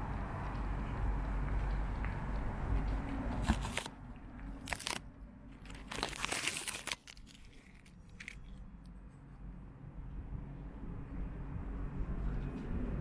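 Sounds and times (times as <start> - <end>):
crackling rustling on microphone: 1.6 - 9.0.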